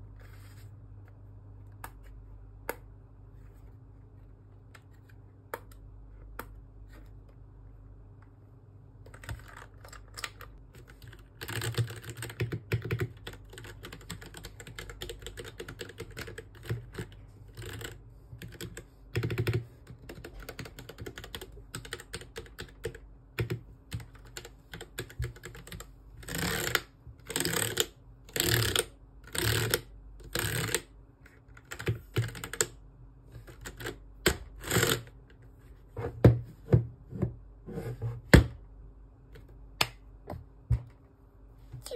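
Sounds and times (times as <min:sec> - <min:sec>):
mechanical keyboard typing: 0:09.1 - 0:30.9, 0:31.5 - 0:32.8, 0:33.5 - 0:35.1.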